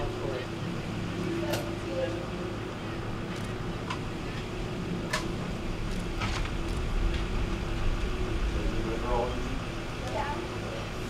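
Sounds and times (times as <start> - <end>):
ambulance engine idling: 0.0 - 11.0.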